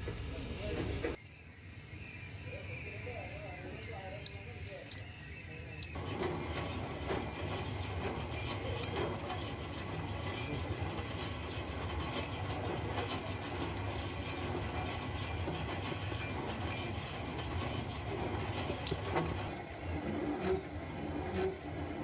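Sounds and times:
boring machine rumbling: 3.2s - 22.0s
clicks and rattles: 4.2s - 5.1s, 5.8s - 19.7s.

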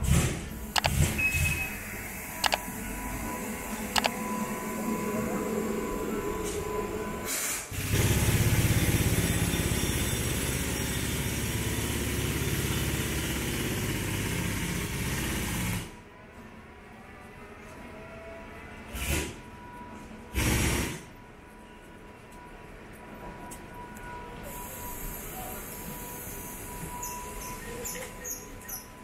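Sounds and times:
street noise: 0.0s - 29.0s
small engine running: 7.7s - 15.9s.

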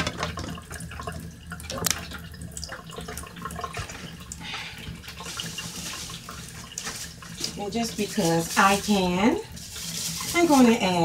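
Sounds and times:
dishes and utensils clattering: 0.0s - 0.6s.

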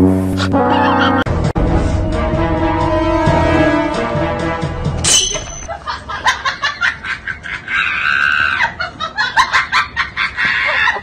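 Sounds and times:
high-pitched laughter: 0.6s - 1.3s, 5.7s - 11.0s.

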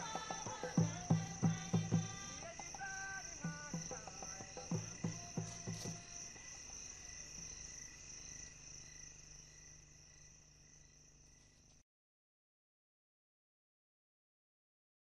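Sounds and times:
insects chirring: 0.0s - 11.8s.

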